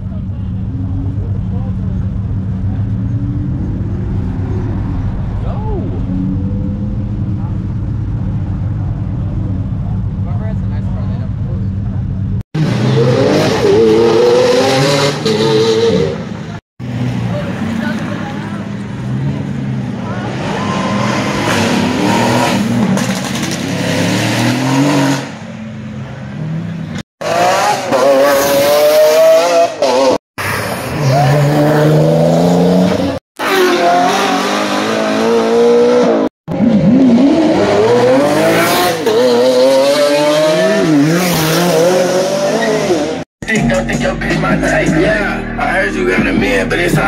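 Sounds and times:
sports cars revving and accelerating: 12.6 - 43.2.

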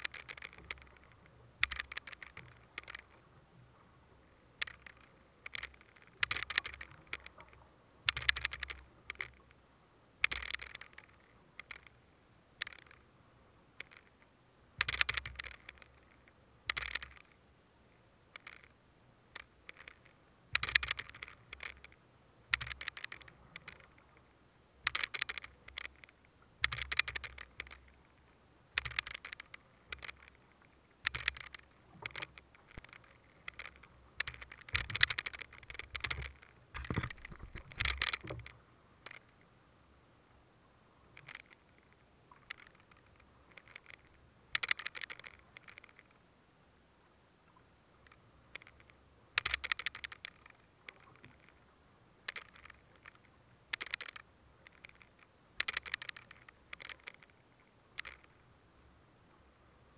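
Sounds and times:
scraping and knocking on boat: 36.8 - 38.4.

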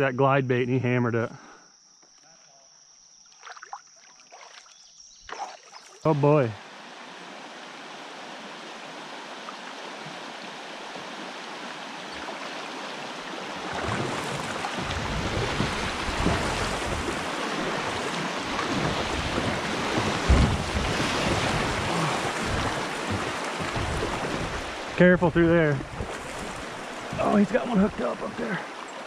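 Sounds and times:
river water rushing: 6.2 - 29.0
kayak bump: 13.4 - 29.0.

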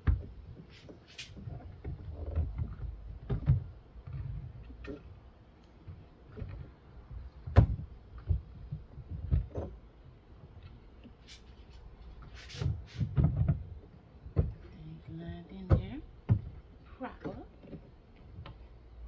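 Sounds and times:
plastic car parts knocking: 1.5 - 5.1, 5.8 - 9.9, 12.7 - 14.7.

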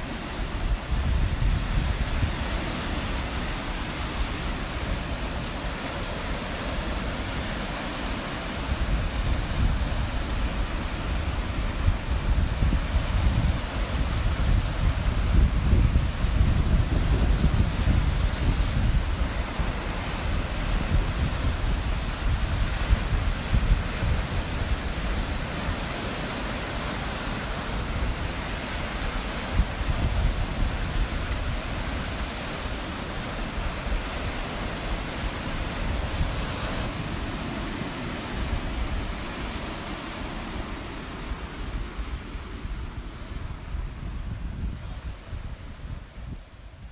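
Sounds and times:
surf breaking against a pier: 0.0 - 46.9
wind buffeting the microphone: 0.0 - 46.9.

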